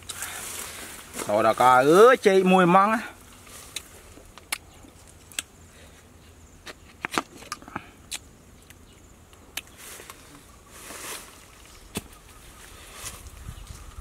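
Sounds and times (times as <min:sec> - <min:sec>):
rustling: 0:00.0 - 0:02.5, 0:09.7 - 0:14.0.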